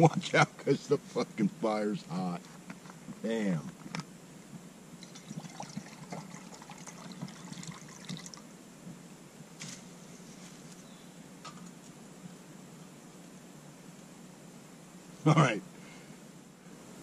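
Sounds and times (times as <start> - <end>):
water pouring into metal cup: 5.0 - 8.4.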